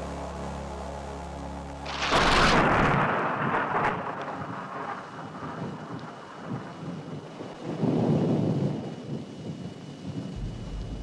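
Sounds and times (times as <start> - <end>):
low rough rumbling: 10.3 - 11.0.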